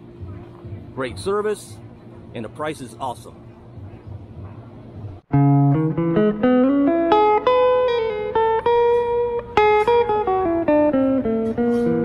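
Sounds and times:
plucked guitar melody: 5.3s - 12.0s.

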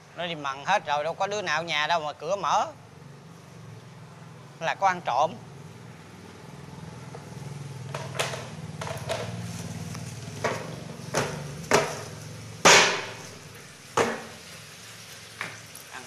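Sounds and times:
sharp knocks: 10.4s - 13.3s, 14.0s - 14.3s.

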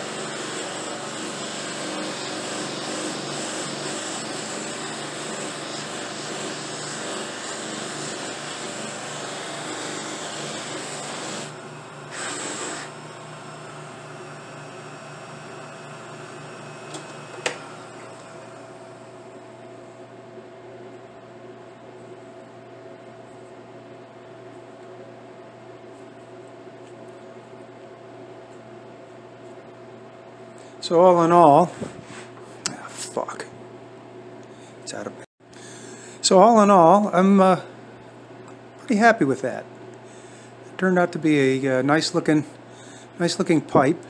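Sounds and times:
buffing machine whirring: 0.0s - 19.0s.

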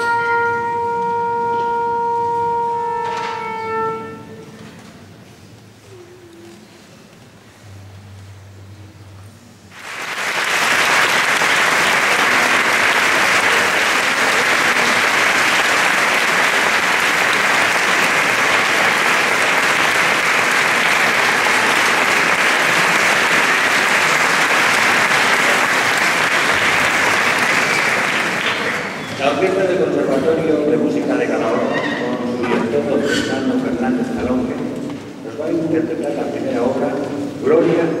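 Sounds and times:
audience applauding: 9.7s - 29.6s.

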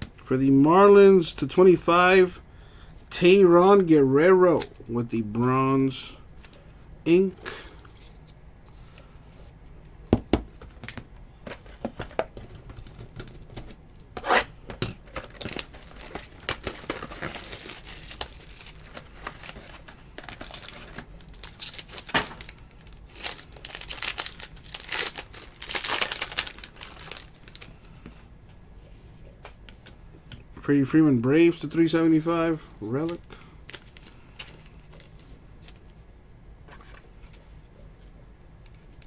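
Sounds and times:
foil wrapper tearing and crinkling: 15.2s - 27.7s.

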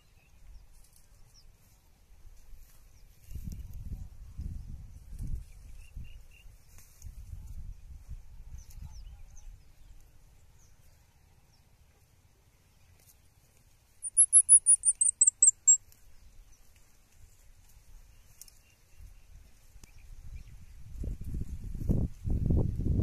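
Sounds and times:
cow grazing on dry brush: 0.6s - 4.0s
small bird trilling: 14.0s - 15.8s.

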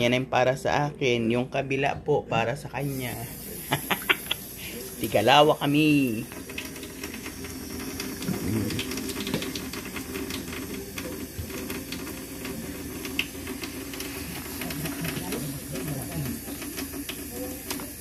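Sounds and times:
tap running into a steel sink: 6.3s - 18.0s.

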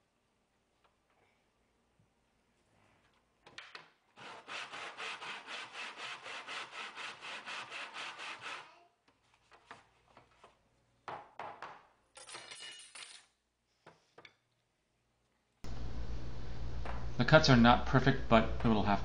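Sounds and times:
hand saw cutting wood: 4.2s - 8.8s
knocks: 11.0s - 11.9s.

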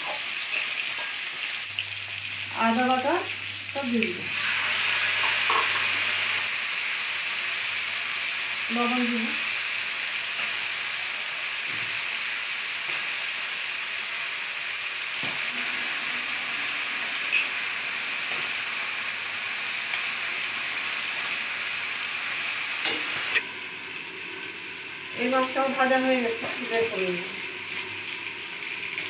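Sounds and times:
food sizzling in hot oil: 0.0s - 29.0s.

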